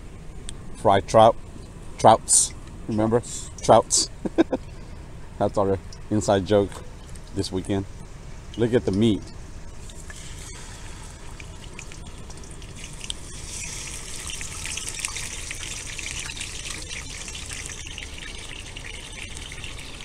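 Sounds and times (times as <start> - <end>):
fish sizzling in oil: 10.0 - 20.0.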